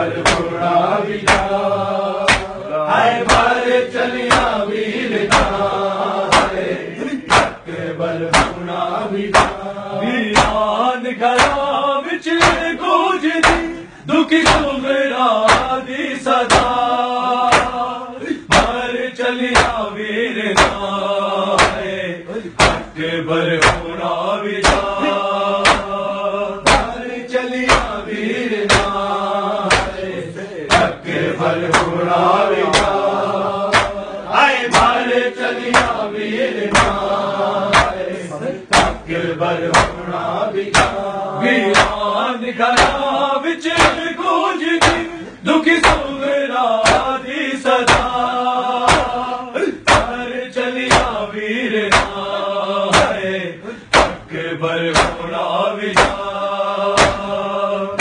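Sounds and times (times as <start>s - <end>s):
men chanting in unison: 0.0s - 58.0s
hands slapping chests: 0.2s - 0.6s, 1.2s - 1.6s, 2.2s - 2.6s, 3.2s - 4.6s, 5.2s - 7.7s, 8.3s - 9.6s, 10.3s - 10.7s, 11.4s - 11.7s, 12.4s - 12.7s, 13.4s - 13.8s, 14.4s - 14.7s, 15.5s - 15.8s, 16.4s - 17.8s, 18.5s - 18.8s, 19.5s - 19.9s, 20.6s - 20.9s, 21.6s - 21.9s, 22.5s - 23.0s, 23.6s - 24.0s, 24.6s - 26.0s, 26.6s - 27.0s, 27.6s - 28.0s, 28.6s - 29.0s, 29.6s - 30.1s, 30.7s - 31.0s, 31.6s - 32.0s, 32.6s - 33.1s, 33.7s - 34.1s, 34.7s - 35.0s, 35.6s - 37.0s, 37.7s - 42.1s, 42.8s - 43.1s, 43.8s - 44.1s, 44.8s - 45.1s, 45.8s - 46.2s, 46.8s - 47.2s, 47.8s - 48.2s, 48.9s - 49.2s, 49.8s - 50.2s, 50.9s - 51.2s, 51.9s - 52.2s, 52.9s - 53.2s, 53.9s - 54.3s, 54.9s - 55.3s, 55.9s - 56.3s, 57.0s - 58.0s.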